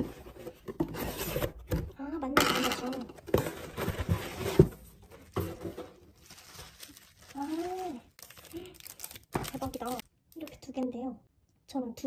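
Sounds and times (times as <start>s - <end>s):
cardboard box and bubble wrap rustling: 3.1s - 10.0s.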